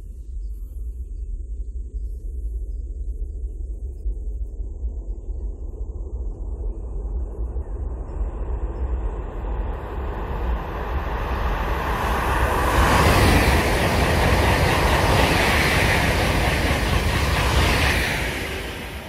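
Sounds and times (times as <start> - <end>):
high-speed train passing: 9.2 - 19.0.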